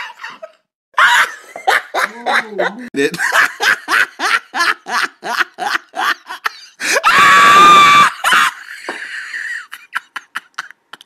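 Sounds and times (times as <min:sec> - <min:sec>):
person laughing: 0:00.0 - 0:07.2, 0:07.9 - 0:11.0
person screaming: 0:06.8 - 0:08.5.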